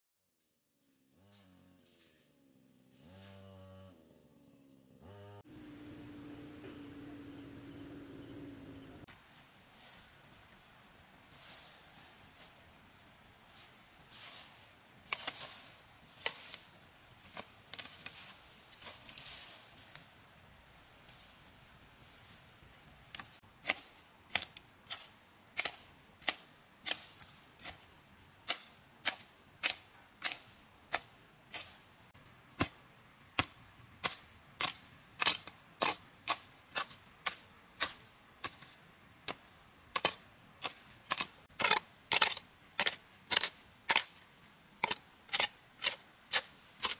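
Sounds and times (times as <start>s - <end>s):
insect drone: 1.1s - 46.9s
hand tool striking wood: 23.1s - 27.8s, 28.4s - 31.7s, 32.6s - 32.8s, 33.4s - 44.1s, 44.8s - 46.9s.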